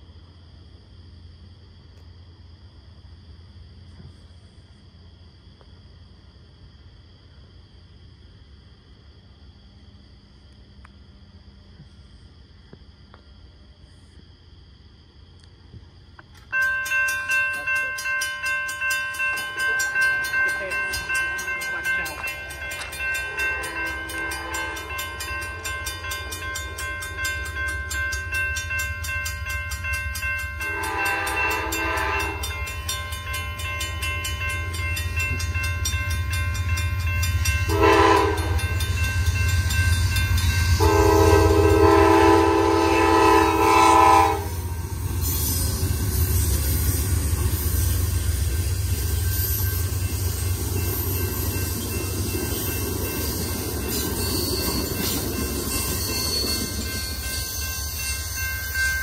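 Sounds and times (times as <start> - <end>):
train wheel and rail noise: 0.0 - 59.0
crossing warning bell ringing: 16.4 - 59.0
train horn blasts: 20.9 - 26.8, 30.6 - 32.8, 37.6 - 39.0, 40.6 - 45.2.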